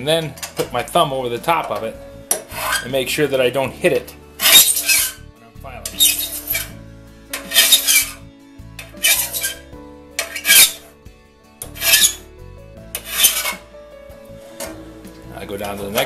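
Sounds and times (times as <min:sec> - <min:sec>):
steel file rasping on saw tooth: 0:02.4 - 0:02.9, 0:04.4 - 0:05.2, 0:05.9 - 0:06.8, 0:07.4 - 0:08.2, 0:08.8 - 0:09.6, 0:10.2 - 0:10.9, 0:11.6 - 0:12.2, 0:13.0 - 0:13.6.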